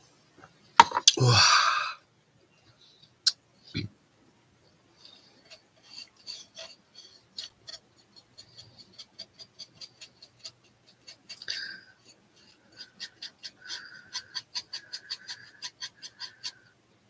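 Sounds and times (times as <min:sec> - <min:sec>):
paintbrush scratching: 0:05.0 - 0:16.7.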